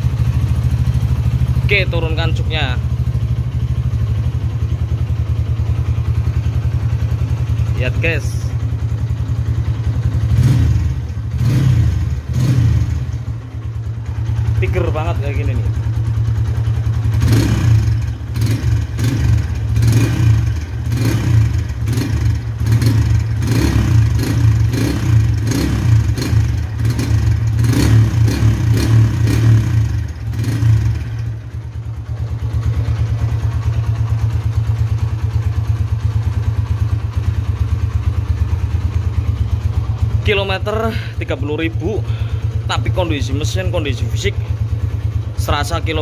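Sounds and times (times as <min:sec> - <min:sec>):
motorcycle engine revving and idling: 0:00.0 - 0:46.0.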